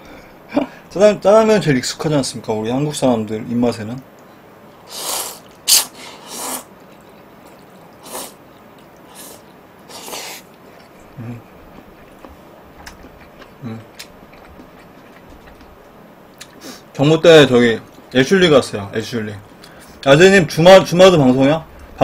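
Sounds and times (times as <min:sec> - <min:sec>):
man slurping noodles: 0:04.9 - 0:06.7, 0:08.0 - 0:08.4, 0:09.1 - 0:10.4.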